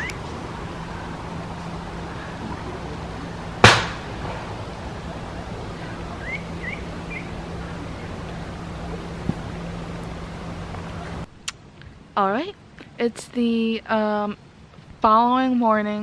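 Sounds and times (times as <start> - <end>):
faint low hum: 0.0 - 16.0
outdoor background hiss: 0.0 - 16.0
sharp loud knock: 3.6 - 4.1
rising bird chirps: 5.8 - 9.2.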